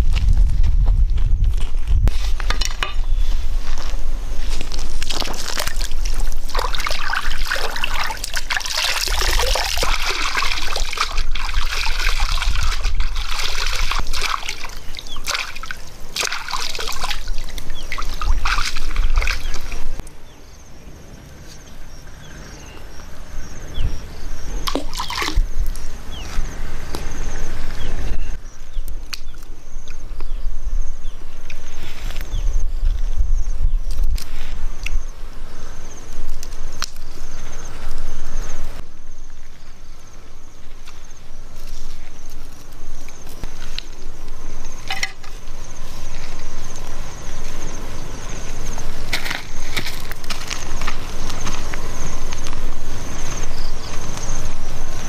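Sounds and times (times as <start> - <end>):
water splashing from wading: 5.0 - 20.0, 24.6 - 25.5.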